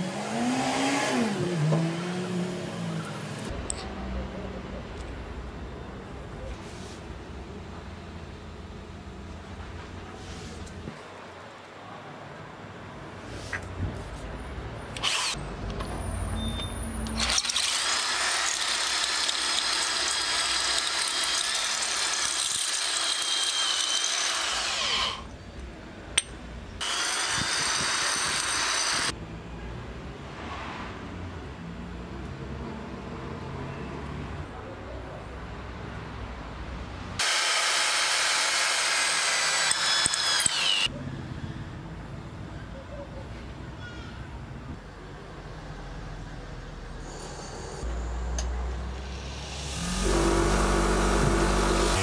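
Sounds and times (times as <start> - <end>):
electric drill boring metal: 15.0 - 15.4, 17.1 - 25.3, 26.2 - 29.1, 37.2 - 40.9, 49.3 - 52.0.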